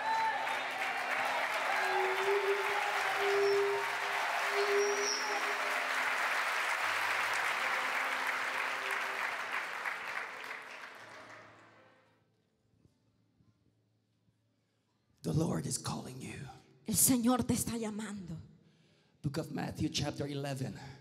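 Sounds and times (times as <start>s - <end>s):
crowd applauding and cheering: 0.0s - 12.0s.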